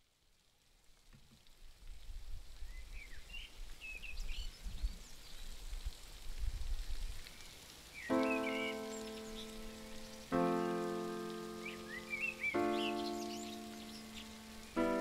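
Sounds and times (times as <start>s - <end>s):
rain-like hiss: 0.0s - 15.0s
bird chirps: 7.3s - 15.0s.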